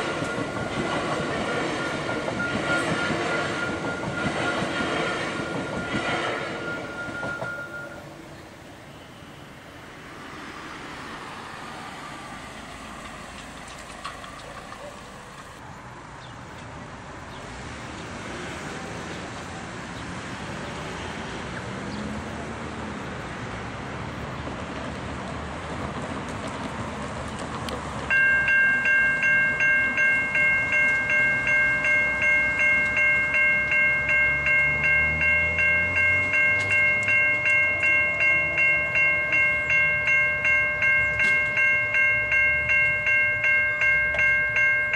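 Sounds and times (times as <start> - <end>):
railway crossing bell ringing: 0.0 - 15.6, 28.1 - 44.9.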